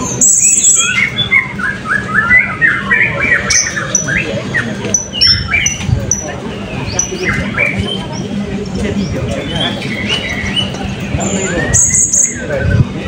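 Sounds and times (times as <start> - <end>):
parrots chirping: 0.0 - 6.3.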